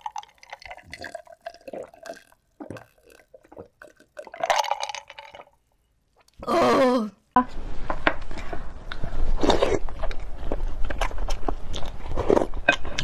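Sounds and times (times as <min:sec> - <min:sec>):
person gulping water: 0:00.0 - 0:05.6.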